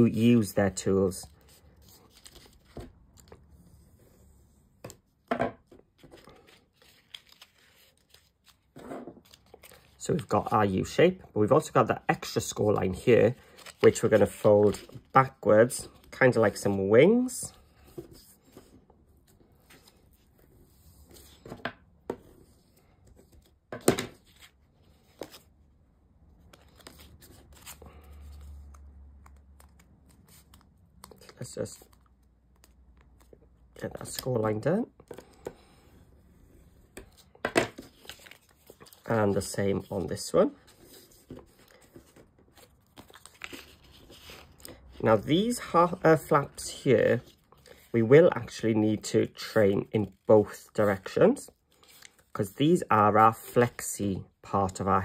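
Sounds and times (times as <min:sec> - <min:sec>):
paper rustling: 0:01.3 - 0:03.9, 0:05.7 - 0:10.0, 0:12.6 - 0:16.7, 0:26.4 - 0:32.0, 0:37.0 - 0:46.5, 0:50.0 - 0:52.6.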